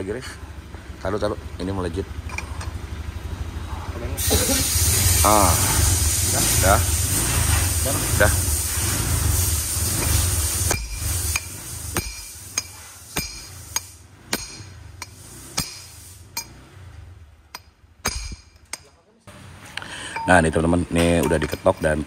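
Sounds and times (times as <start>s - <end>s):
hammer tapping metal: 10.0s - 16.6s, 17.5s - 19.0s, 21.0s - 22.0s
low steady hum: 10.3s - 16.5s.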